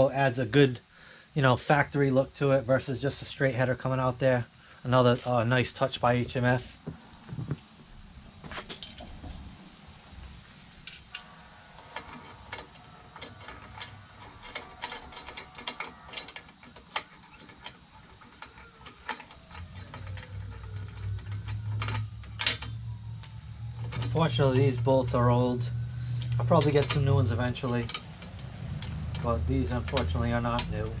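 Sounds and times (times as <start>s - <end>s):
low hum: 2.0s - 31.0s
hand tool clicking on metal: 12.0s - 24.9s, 26.2s - 31.0s.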